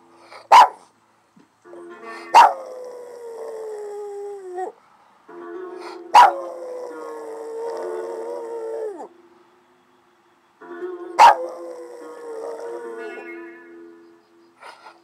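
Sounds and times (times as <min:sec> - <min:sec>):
dog barking: 0:00.4 - 0:00.9, 0:02.3 - 0:02.7, 0:06.2 - 0:06.5, 0:11.2 - 0:11.6
music: 0:01.6 - 0:02.9, 0:05.2 - 0:15.0
dog howling: 0:02.4 - 0:04.8, 0:06.2 - 0:09.1, 0:11.2 - 0:13.2.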